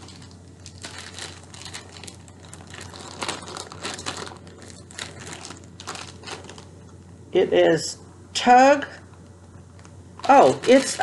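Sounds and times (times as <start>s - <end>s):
plastic bag crinkling: 0.0s - 7.0s, 9.7s - 11.0s.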